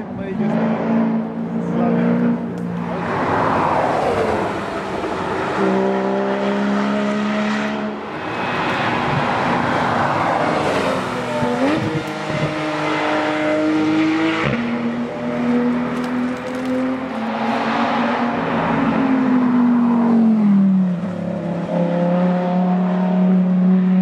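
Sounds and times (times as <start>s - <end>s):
rally cars passing at speed: 0.0s - 24.0s.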